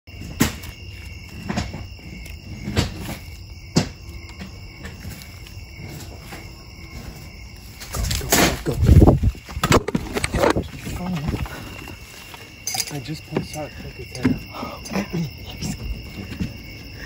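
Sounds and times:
crickets chirping: 0.1 - 17.0
rustling: 0.4 - 13.8.

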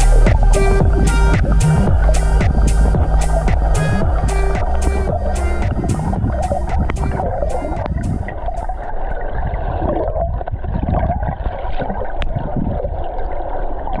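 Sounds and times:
music beat: 0.0 - 9.1
underwater rumble and gurgling: 0.0 - 14.0.

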